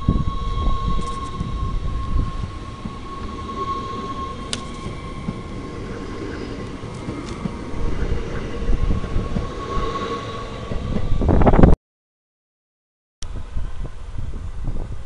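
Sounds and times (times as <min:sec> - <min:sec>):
high whine: 0:00.0 - 0:11.8
train wheels rumbling on rail: 0:00.0 - 0:11.8.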